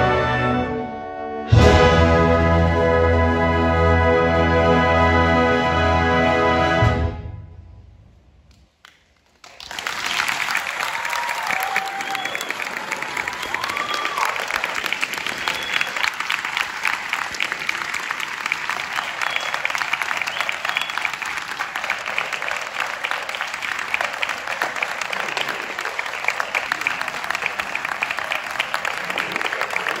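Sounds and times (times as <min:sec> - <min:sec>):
audience applauding: 0:08.8 - 0:30.0.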